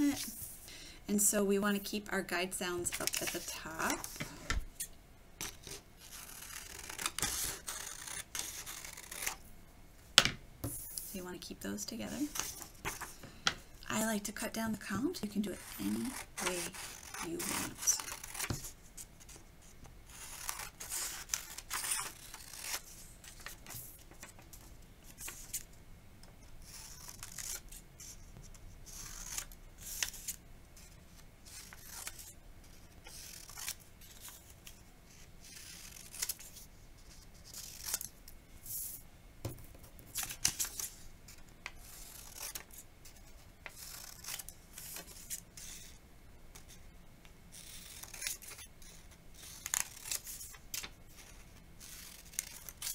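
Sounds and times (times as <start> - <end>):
scissors snipping paper: 15.6 - 18.6, 43.6 - 46.0, 47.6 - 52.9.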